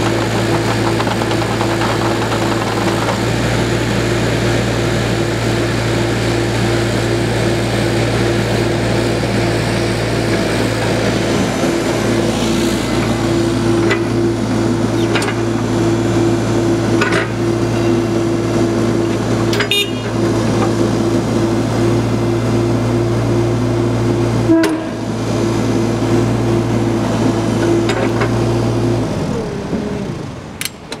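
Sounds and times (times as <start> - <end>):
sharp clicks and knocks: 0.0 - 3.2
excavator diesel engine running: 0.0 - 31.0
hydraulic whine: 24.4 - 28.3.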